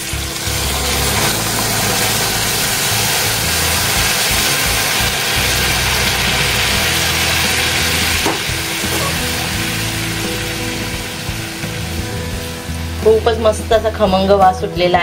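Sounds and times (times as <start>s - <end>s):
milk hissing and bubbling in pan: 0.0s - 13.0s.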